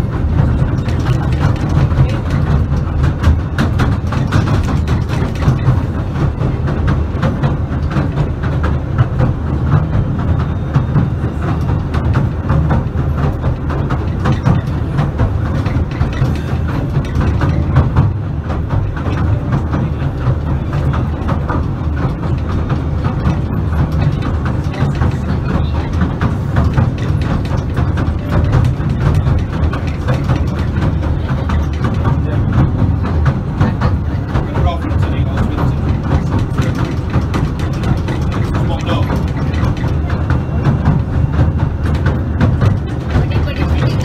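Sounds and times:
train low rumble: 0.0s - 44.0s
wheels clattering on rails: 0.0s - 44.0s.

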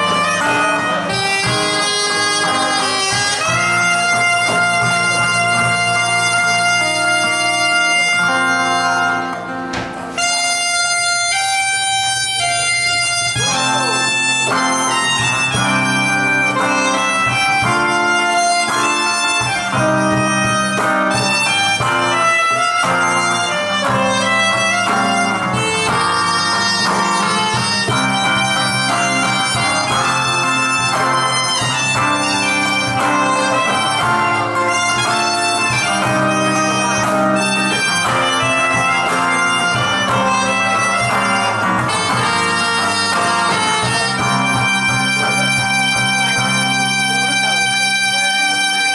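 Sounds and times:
soprano saxophone melody: 0.0s - 48.9s
strummed acoustic guitar: 0.0s - 48.9s.

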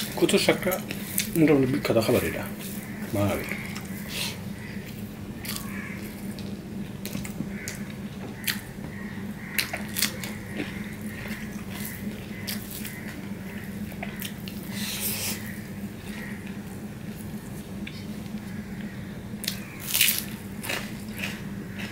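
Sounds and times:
steady low hum: 0.0s - 21.9s
person chewing wetly: 2.6s - 4.1s, 4.8s - 18.5s, 19.4s - 21.9s.

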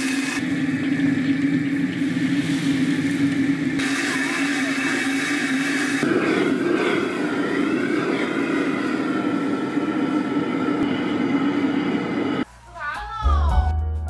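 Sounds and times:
food sizzling in wok: 0.0s - 9.5s
gas burner roaring: 0.0s - 12.5s.

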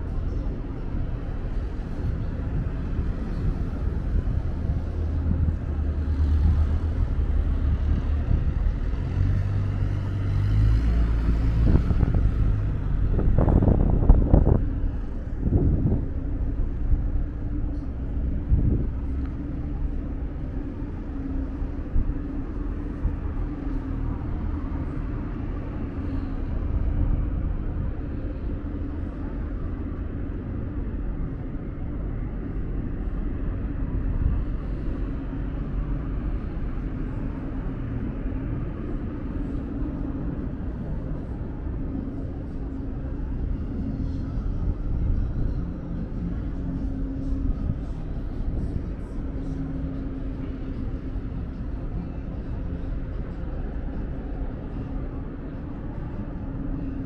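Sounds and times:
constant hum: 0.0s - 57.0s
low rumble of traffic: 0.0s - 57.0s.

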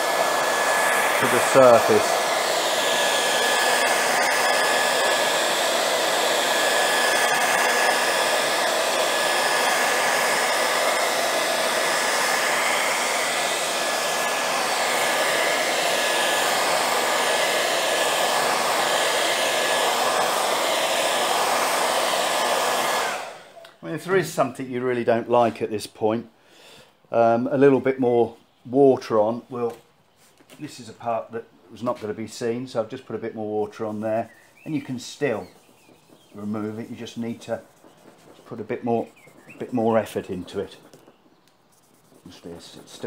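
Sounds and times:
hair dryer blowing: 0.0s - 23.6s, 33.4s - 41.1s.

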